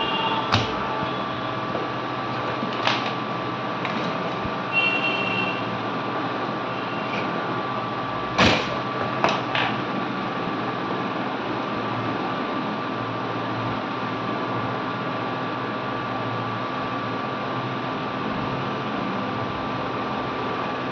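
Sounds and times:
hand tools clicking and knocking: 0:00.5 - 0:04.7, 0:07.0 - 0:07.4, 0:08.4 - 0:09.9.

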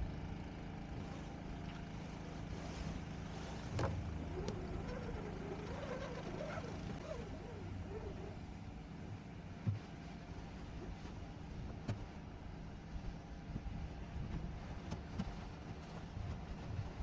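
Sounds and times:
steady low hum: 0:00.0 - 0:17.0
line squealing through rigging: 0:03.5 - 0:08.6.

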